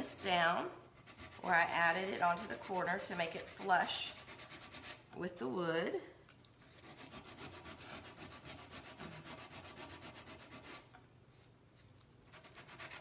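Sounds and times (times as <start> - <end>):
sandpaper rubbing back and forth: 0.0 - 5.0, 6.7 - 10.9, 12.3 - 13.0.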